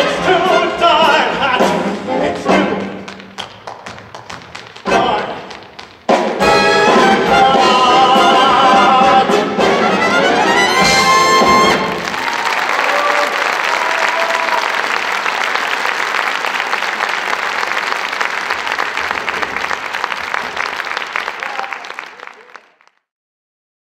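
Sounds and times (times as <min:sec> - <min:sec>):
audience applauding: 0:03.0 - 0:07.2, 0:10.3 - 0:23.0.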